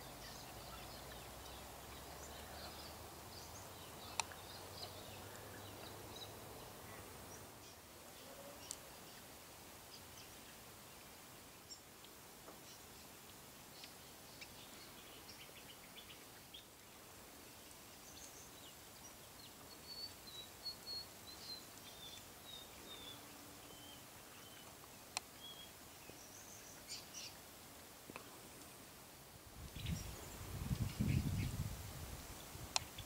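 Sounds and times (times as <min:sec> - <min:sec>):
background hiss: 0:00.0 - 0:33.0.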